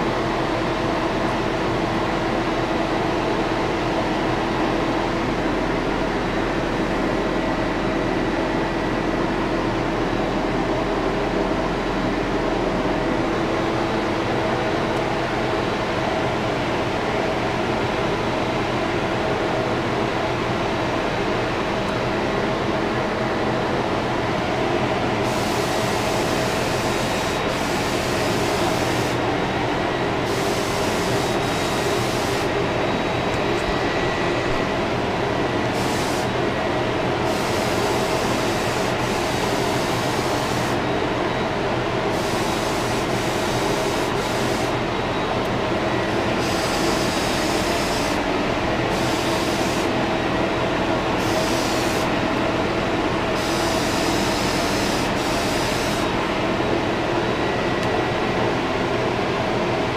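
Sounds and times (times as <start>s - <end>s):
steady machine drone: 0.0s - 59.9s
paint spray gun hissing: 35.8s - 36.3s, 46.4s - 48.2s, 48.9s - 49.9s, 51.2s - 52.1s, 53.4s - 56.1s.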